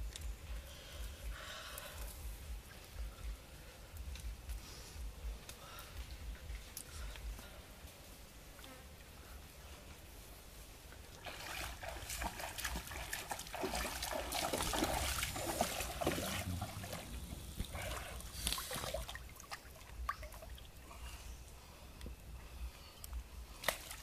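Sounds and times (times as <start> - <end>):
water trickling and splashing: 10.8 - 21.7, 23.1 - 24.0.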